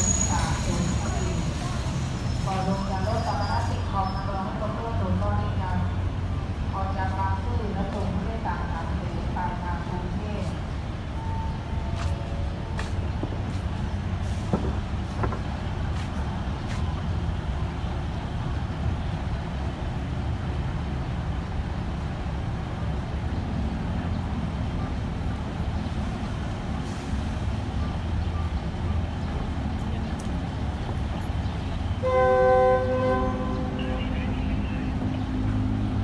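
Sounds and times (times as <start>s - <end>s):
train horn blast: 32.0s - 34.2s.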